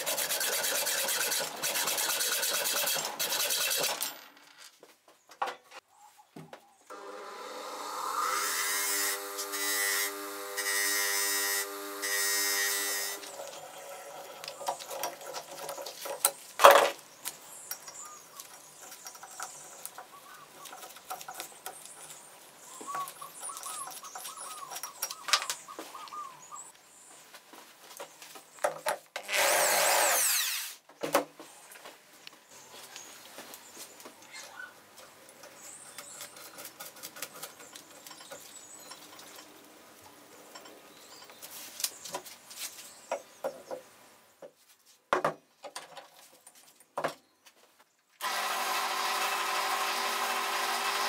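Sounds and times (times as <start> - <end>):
power drill winding up: 6.9 - 14.6, 29.2 - 30.8, 48.2 - 51.0
bench grinder grinding metal: 6.9 - 14.7, 48.2 - 51.0.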